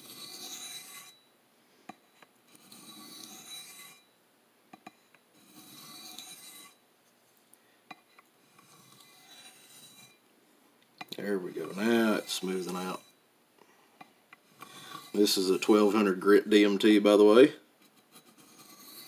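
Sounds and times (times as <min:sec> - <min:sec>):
knife sharpening on diamond plate: 0:00.0 - 0:01.2, 0:02.5 - 0:04.1, 0:05.4 - 0:06.8, 0:08.6 - 0:10.2, 0:14.6 - 0:15.2, 0:18.1 - 0:19.0.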